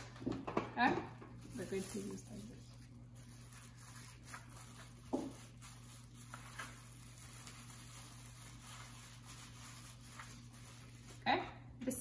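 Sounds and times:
plastic wrap rustling: 0:00.0 - 0:11.3.

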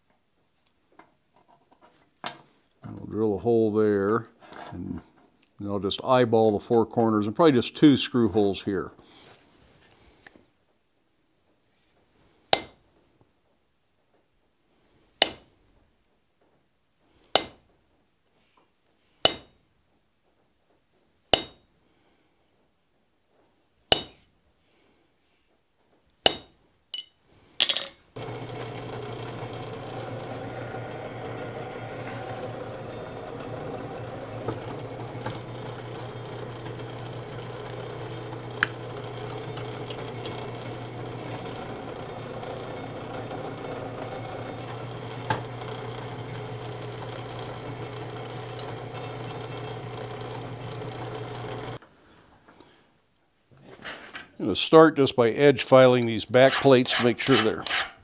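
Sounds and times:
hammer striking metal punch: 0:12.5 - 0:13.0, 0:15.2 - 0:15.7, 0:17.4 - 0:17.8, 0:19.2 - 0:19.8, 0:21.3 - 0:21.8, 0:23.9 - 0:24.5, 0:26.2 - 0:28.2
drill press motor humming: 0:28.2 - 0:51.8.

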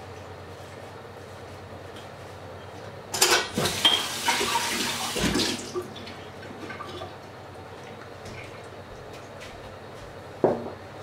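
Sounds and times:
water running from tap: 0:03.6 - 0:06.2.

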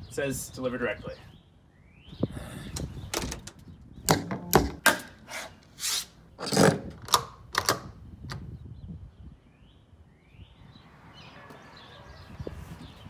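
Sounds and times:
door lock clicks and knocks: 0:03.1 - 0:05.1, 0:06.4 - 0:08.4.

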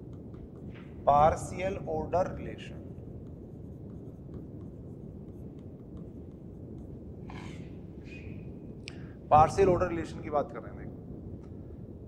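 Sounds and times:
stylus tapping and scratching: 0:00.0 - 0:00.9, 0:03.0 - 0:07.6
low room hum: 0:00.0 - 0:12.0.

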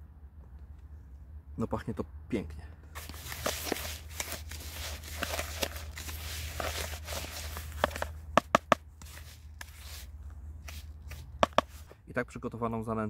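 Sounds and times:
bait stirred by hand rustling: 0:03.0 - 0:08.1
sharp knocks: 0:11.4 - 0:11.8.

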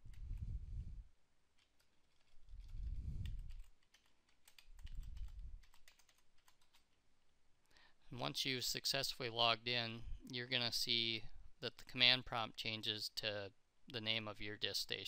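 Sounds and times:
soft low rumbles: 0:02.5 - 0:03.7, 0:04.8 - 0:05.8.

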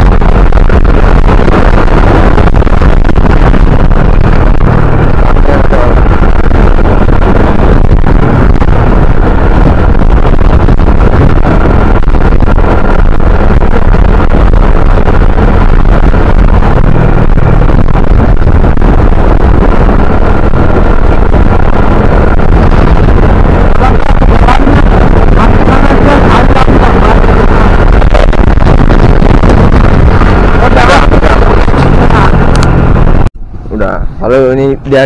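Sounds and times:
wind rushing over microphone: 0:00.0 - 0:35.0.

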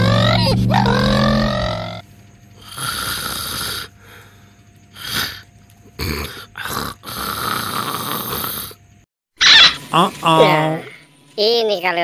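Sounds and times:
person snoring: 0:02.6 - 0:04.0, 0:06.0 - 0:08.8.

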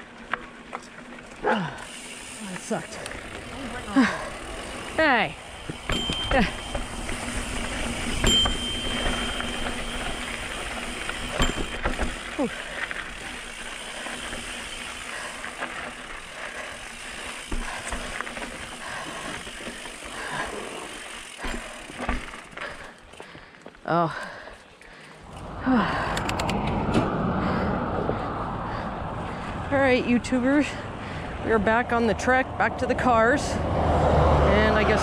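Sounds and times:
bike knocks and rattles: 0:03.2 - 0:23.2.

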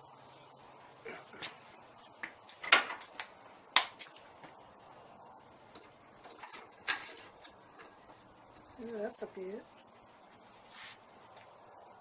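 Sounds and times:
cooling flux cracking and popping: 0:01.2 - 0:04.7, 0:05.4 - 0:10.2.

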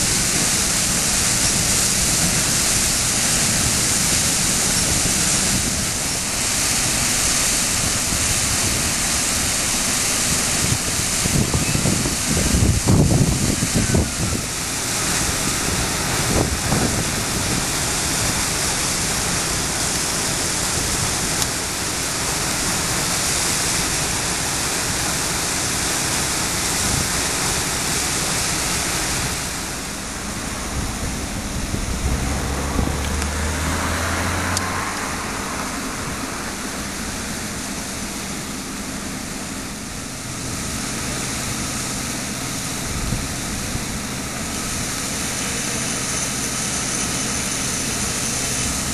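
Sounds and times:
water jet rushing and splashing: 0:00.0 - 0:48.9
low drone: 0:28.8 - 0:48.9.

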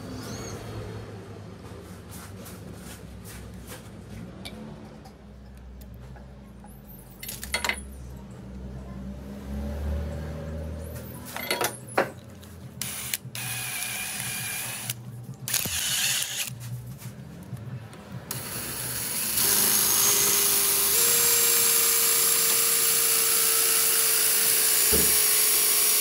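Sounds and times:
drill motor whirring: 0:12.8 - 0:16.6, 0:18.3 - 0:26.0.

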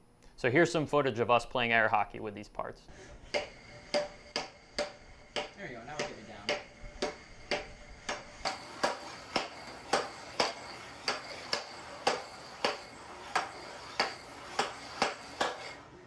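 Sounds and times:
air hockey mallets clacking puck: 0:03.3 - 0:15.8.

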